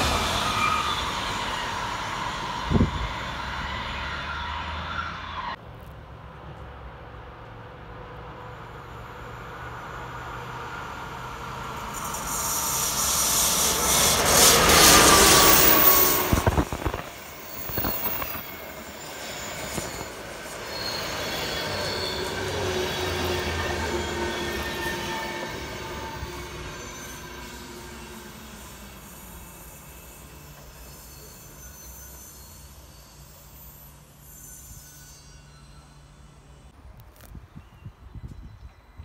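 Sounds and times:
train passing: 0.0s - 5.6s, 6.2s - 37.0s
train brake squeal: 0.2s - 5.6s, 11.8s - 36.8s.

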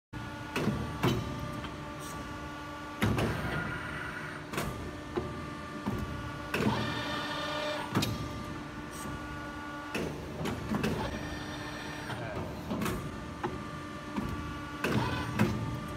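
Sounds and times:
hydraulic unit humming: 0.2s - 15.9s
clamps clunking and clicking: 12.1s - 15.9s.

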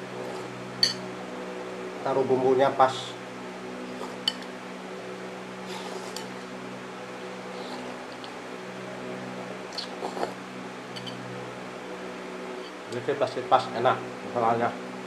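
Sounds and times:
steady low hum: 0.0s - 15.0s
man slurping noodle soup: 5.6s - 6.3s, 9.8s - 10.4s.

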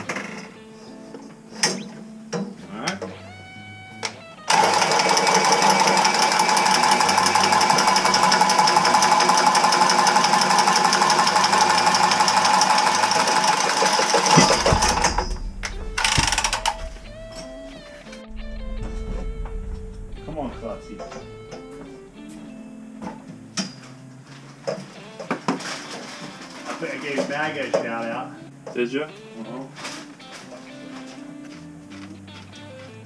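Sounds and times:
power cutter cutting pipe: 4.5s - 15.3s.

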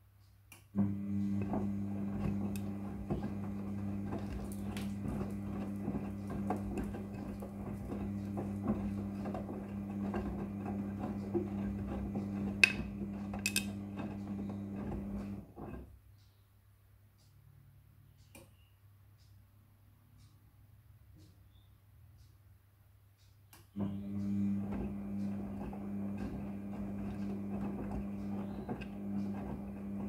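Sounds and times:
washing machine tumbling: 0.8s - 15.9s, 23.8s - 30.0s.

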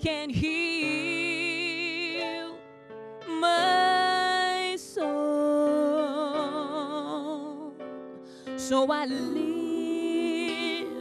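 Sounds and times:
woman singing: 0.0s - 2.6s, 3.3s - 7.8s, 8.6s - 11.0s
soft instrumental accompaniment: 0.4s - 11.0s.

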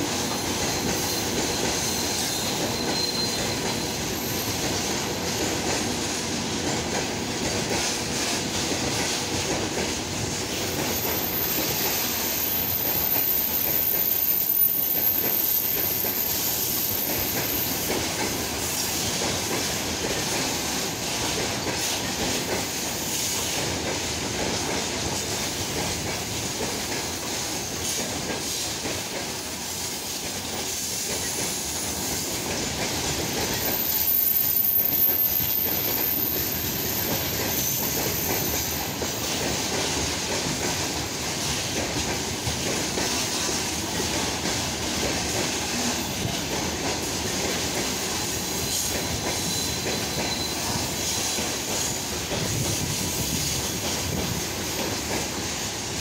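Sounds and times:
freight wagons rumbling on rails: 0.0s - 56.0s
high-pitched wheel squeal: 0.3s - 5.6s, 10.8s - 17.9s, 33.6s - 39.0s.

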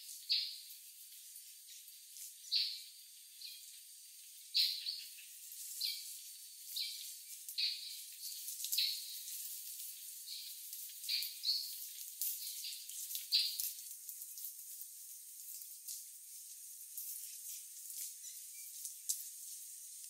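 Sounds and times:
high chirping calls: 4.5s - 9.3s.

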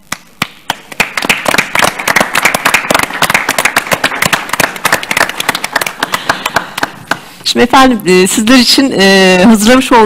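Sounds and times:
crowd applauding: 0.4s - 7.2s.

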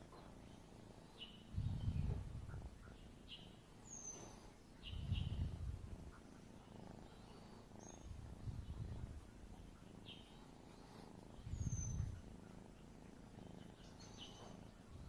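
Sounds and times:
kitten purring: 0.0s - 15.0s.

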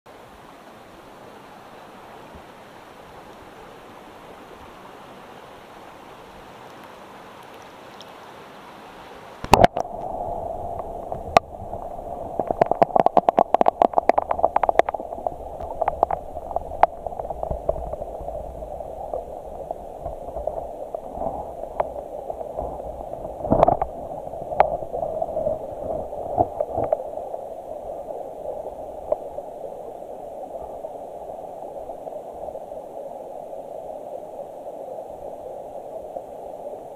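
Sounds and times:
creek water running: 0.1s - 36.9s
muffled underwater current: 9.4s - 36.9s.

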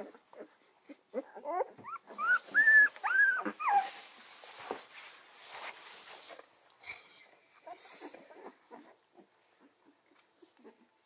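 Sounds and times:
puppies whimpering: 0.0s - 4.0s
soft rustling: 1.6s - 11.0s.

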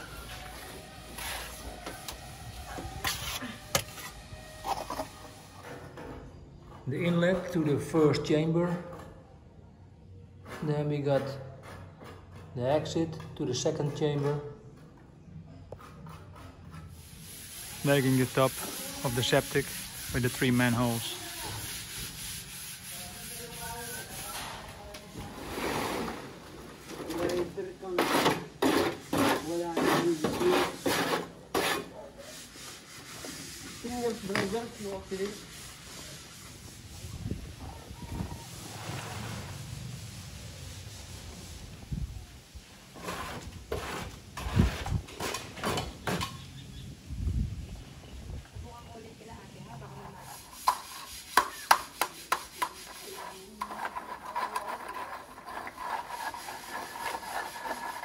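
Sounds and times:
wet concrete scraping: 0.0s - 5.7s, 15.8s - 41.8s, 42.8s - 46.3s, 49.4s - 58.0s.

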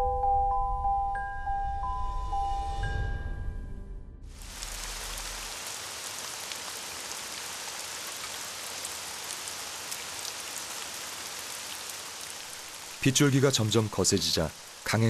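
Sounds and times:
steady rain falling: 4.3s - 15.0s
raindrops ticking: 4.4s - 15.0s.

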